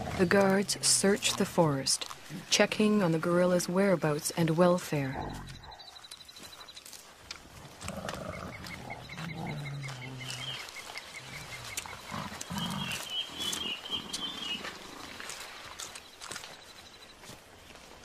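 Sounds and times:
gorillas grunting: 0.0 - 1.4, 7.6 - 15.3.

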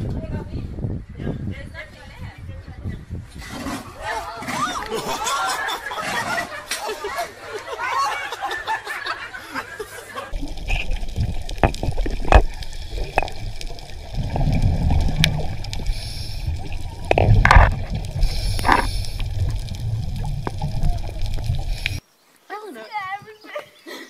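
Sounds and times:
bubbling gurgles: 10.3 - 22.0
underwater sloshing rumble: 10.3 - 22.0.

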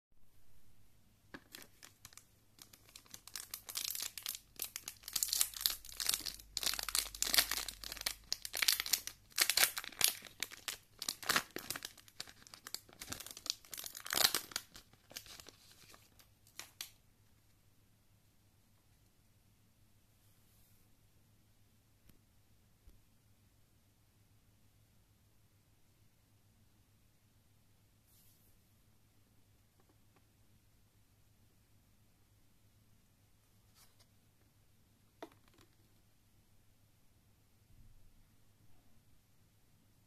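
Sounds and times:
foil wrapper tearing and crinkling: 1.5 - 16.8.

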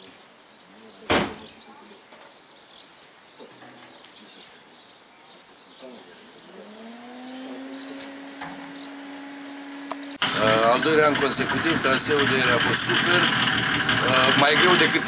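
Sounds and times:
birds chirping: 0.0 - 15.0
low hum rising in pitch: 6.5 - 11.2.

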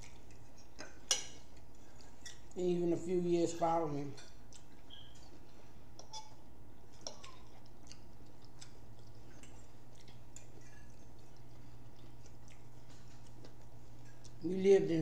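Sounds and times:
faint chewing sounds: 0.0 - 2.7, 4.0 - 14.5
steady low hum: 0.0 - 15.0.

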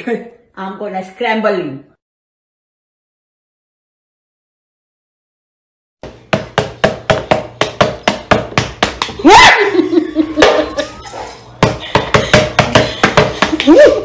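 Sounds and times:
woman shrieking: 9.2 - 9.8, 13.6 - 14.0.

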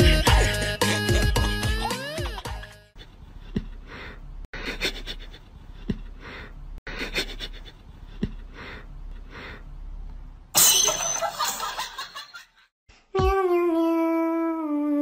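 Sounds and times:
music with humming: 0.0 - 2.9.

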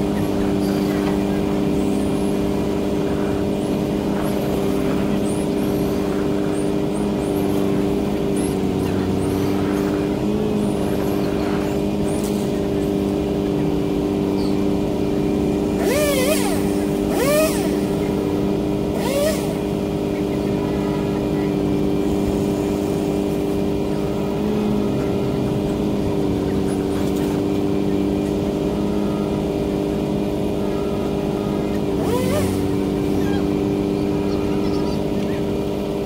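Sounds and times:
truck engine droning: 0.0 - 36.0
remote-control car motor whining: 15.8 - 19.7, 31.4 - 35.5.

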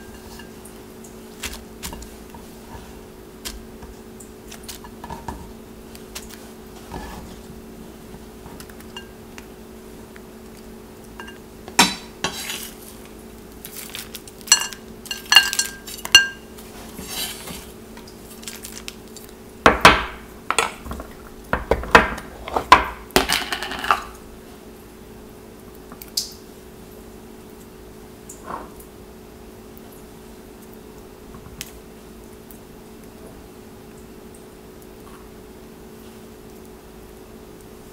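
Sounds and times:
steady hum: 0.0 - 37.9
nuts clinking onto ceramic plate: 14.5 - 16.4
objects knocking on stone countertop: 21.6 - 24.1.

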